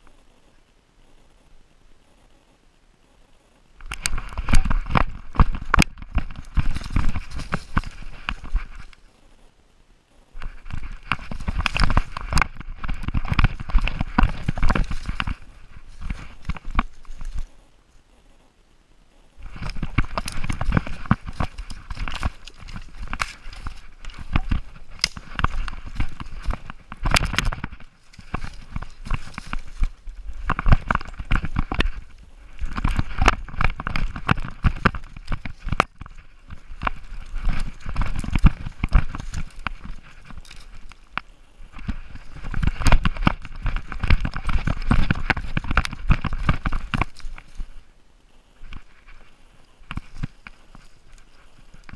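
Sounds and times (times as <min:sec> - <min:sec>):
dog footfalls and rustles: 0:03.8 - 0:09.0, 0:10.4 - 0:17.5, 0:19.4 - 0:47.8.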